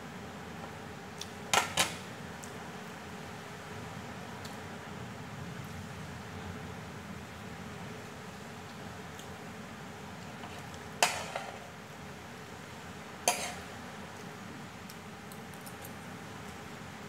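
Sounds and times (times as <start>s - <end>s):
fork clinking against a plate: 13.3s - 13.6s.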